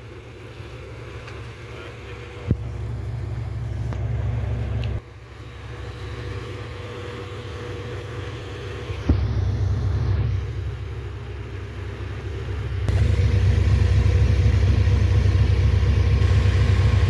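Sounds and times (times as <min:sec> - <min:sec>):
engines rumbling: 0:00.0 - 0:17.0.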